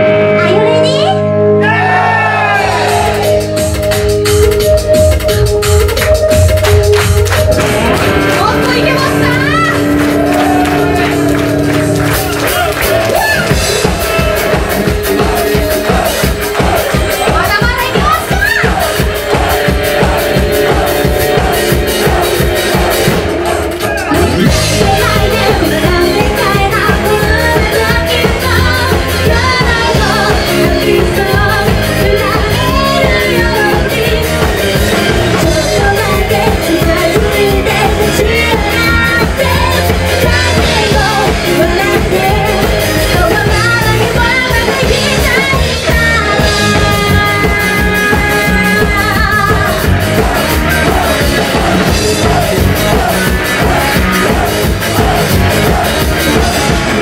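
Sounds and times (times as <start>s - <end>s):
live rock band playing: 0.0s - 57.0s
drum kit beat: 1.7s - 57.0s
woman singing lead vocals: 15.1s - 23.2s, 24.1s - 56.8s.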